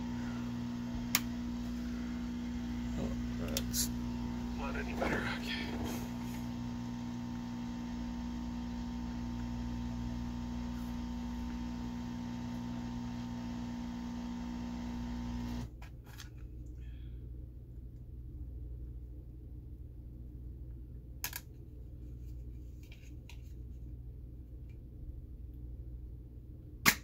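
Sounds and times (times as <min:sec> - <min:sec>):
electrical hum: 0:00.0 - 0:15.8.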